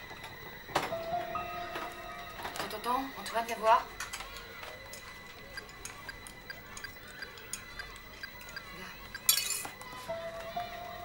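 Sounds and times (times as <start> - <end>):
coffee cups being handled: 9.1 - 10.0.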